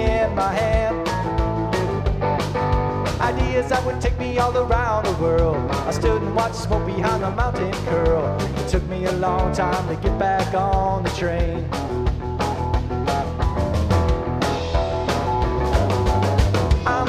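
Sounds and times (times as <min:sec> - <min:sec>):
electric guitar bent notes: 0:00.0 - 0:08.6, 0:11.5 - 0:17.0
drum kit hits: 0:00.0 - 0:17.0
electric bass: 0:00.0 - 0:17.0.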